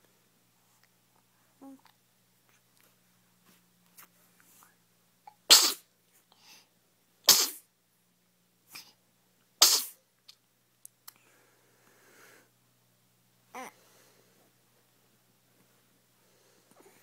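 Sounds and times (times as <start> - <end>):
baby sneezing: 5.3 - 5.9, 7.3 - 7.7, 9.6 - 10.0.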